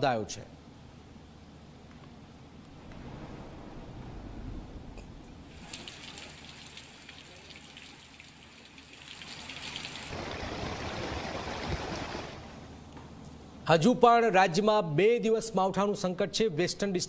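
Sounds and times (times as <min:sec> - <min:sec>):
heavy rain: 0:02.7 - 0:08.1, 0:09.4 - 0:12.6.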